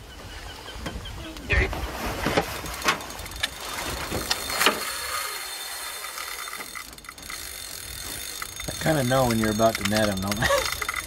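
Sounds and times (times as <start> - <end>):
fishing reel ratcheting: 3.0 - 11.0.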